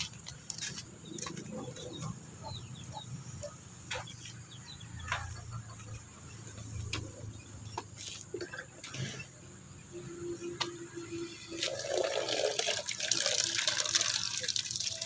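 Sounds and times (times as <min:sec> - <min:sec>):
birds chirping: 0:00.0 - 0:11.5.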